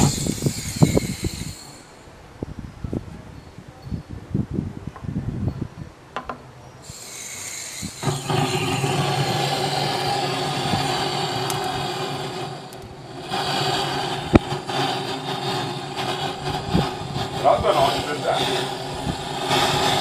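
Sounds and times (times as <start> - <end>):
hiss of air: 0.0 - 2.2, 6.8 - 20.0.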